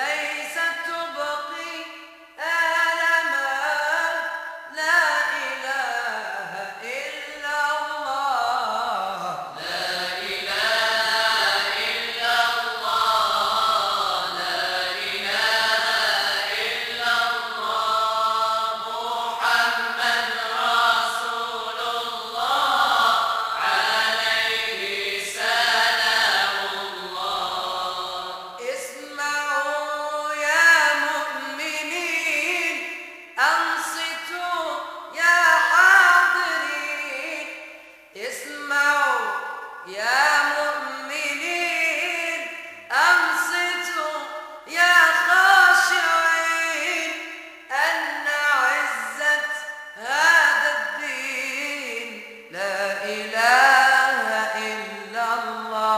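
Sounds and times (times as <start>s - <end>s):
voices chanting unaccompanied: 9.1s - 29.1s.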